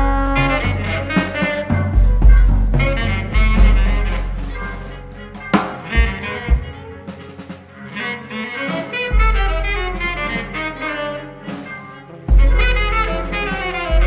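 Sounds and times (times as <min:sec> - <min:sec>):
saxophone phrases: 0:00.0 - 0:14.0
sparse drum hits: 0:05.5 - 0:06.3.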